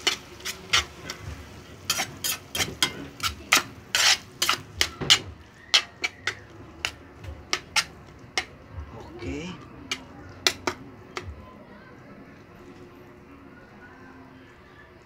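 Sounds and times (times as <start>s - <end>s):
metal spatula scraping a frying pan: 0.0s - 8.5s.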